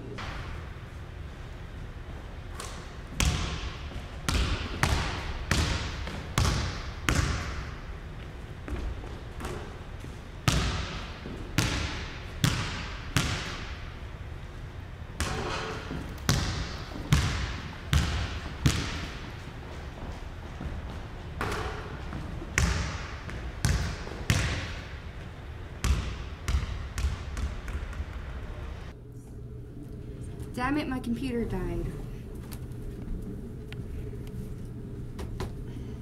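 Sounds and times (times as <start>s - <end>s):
basketball bouncing on hardwood floor: 3.1s - 7.7s, 10.4s - 13.8s, 15.2s - 19.3s, 20.6s - 24.8s, 25.8s - 28.2s.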